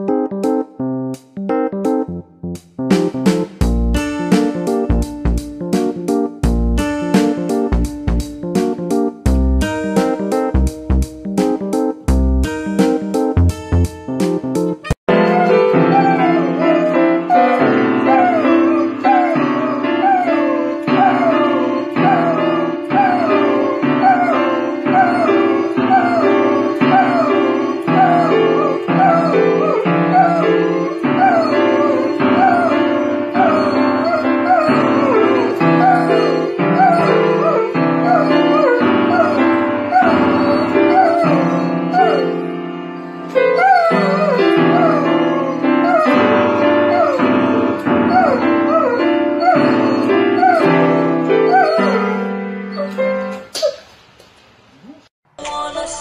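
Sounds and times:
piano chords: 0:00.0 - 0:53.6
dog howling: 0:14.8 - 0:42.6, 0:43.3 - 0:53.5.

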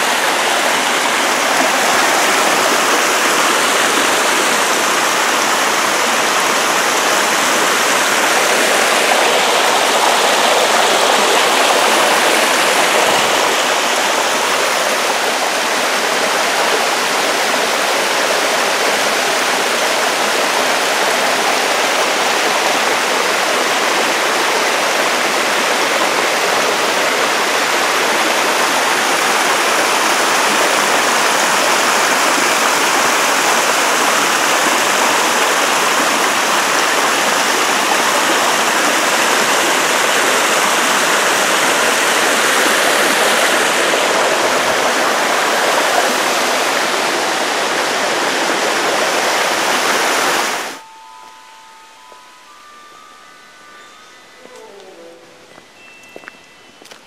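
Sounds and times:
stream rushing over rocks: 0:00.0 - 0:50.8.

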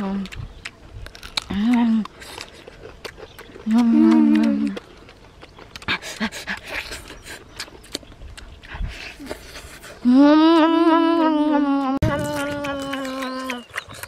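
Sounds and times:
wet chewing and crunching: 0:00.0 - 0:11.3, 0:12.0 - 0:14.0
boy humming mmm: 0:03.7 - 0:04.8, 0:09.1 - 0:13.8.

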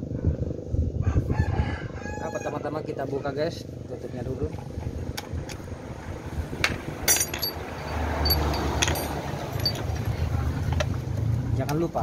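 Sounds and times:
metal clinks of socket wrench: 0:07.1 - 0:09.9.

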